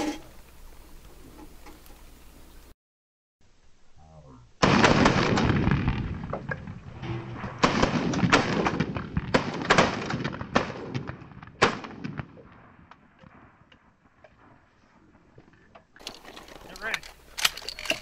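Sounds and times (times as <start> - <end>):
shotgun shots: 4.6 - 6.5, 7.2 - 12.4.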